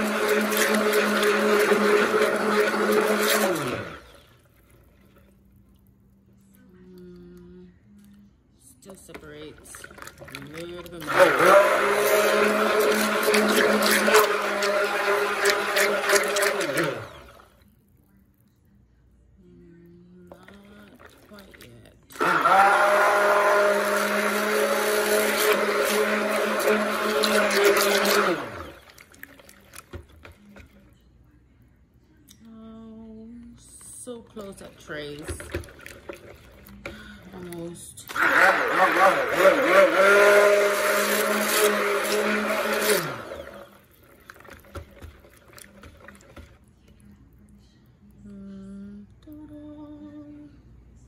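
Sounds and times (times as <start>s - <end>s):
stick blender motor whine: 0.0s - 4.3s, 10.1s - 17.5s, 22.1s - 30.7s, 35.1s - 46.6s.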